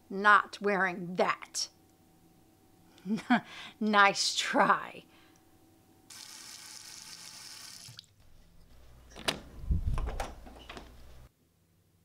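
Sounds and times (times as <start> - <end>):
water running from a tap: 6.1 - 8.1.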